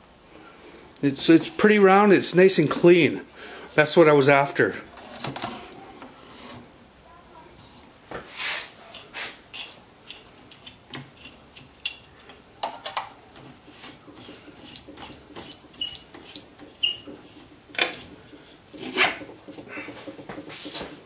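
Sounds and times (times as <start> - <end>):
hands rubbing wooden dowel: 8.2 - 9.4, 13.4 - 21.0.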